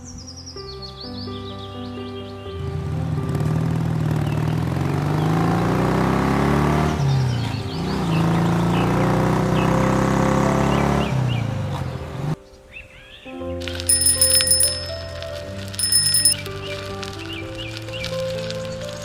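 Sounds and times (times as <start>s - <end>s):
vehicles passing on road: 2.7s - 12.4s
birds chirping: 13.9s - 16.4s.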